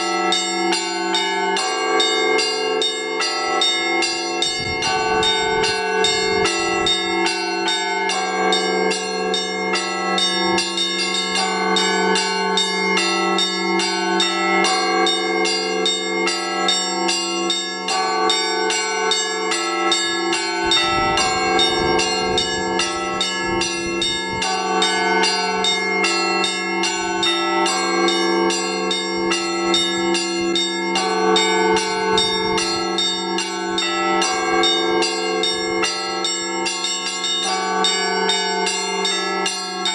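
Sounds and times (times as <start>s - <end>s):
large bells humming: 0.0s - 39.9s
small bells rapidly struck: 19.6s - 38.3s.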